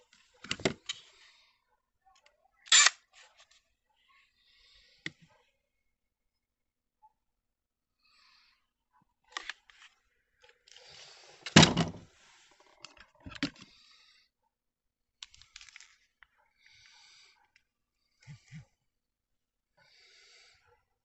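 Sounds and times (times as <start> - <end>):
plastic tools clicking and rattling: 0.1 - 1.0, 15.2 - 16.0
heavy thunk: 11.6 - 12.0.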